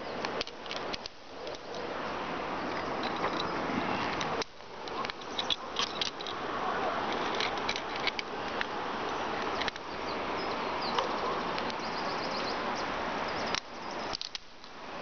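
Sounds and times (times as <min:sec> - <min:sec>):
steady rushing noise: 0:00.0 - 0:13.7
small birds chirping: 0:04.4 - 0:07.5, 0:09.0 - 0:14.5.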